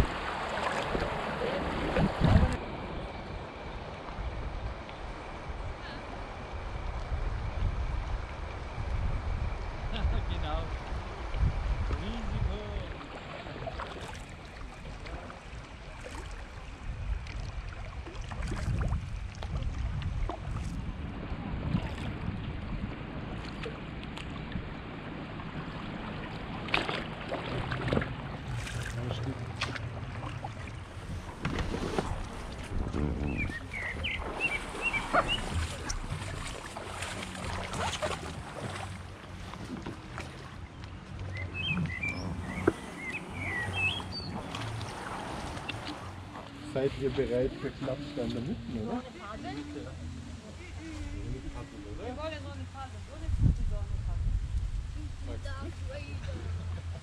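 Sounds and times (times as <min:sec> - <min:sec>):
paddle splashes and drips: 0:00.0 - 0:02.6, 0:10.8 - 0:47.2
water lapping and trickling: 0:00.0 - 0:57.0
low rumble: 0:16.5 - 0:49.1, 0:49.9 - 0:57.0
grass rustling against kayak: 0:25.6 - 0:52.3.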